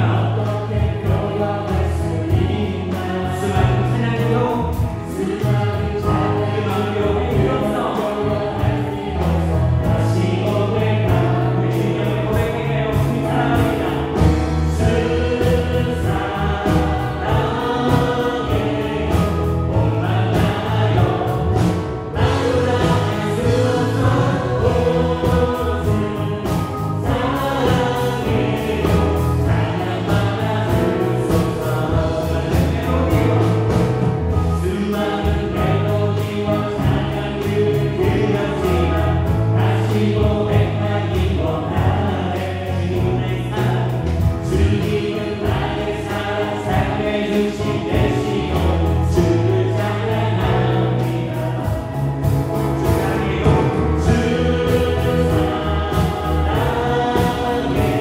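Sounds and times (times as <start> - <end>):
live band playing: 0.0 - 58.0
voices singing along: 0.0 - 58.0.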